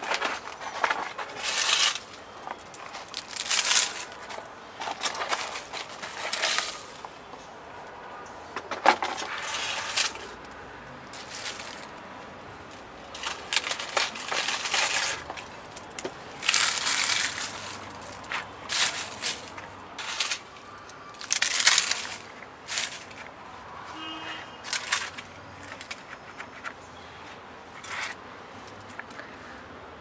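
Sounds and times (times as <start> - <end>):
dry leaves crunching: 0.0 - 7.2, 9.0 - 10.4, 11.0 - 26.1.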